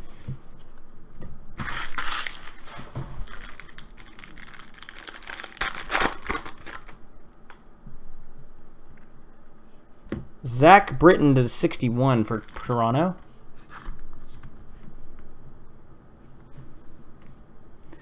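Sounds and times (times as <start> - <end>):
plastic card sleeves crinkling: 1.6 - 7.0.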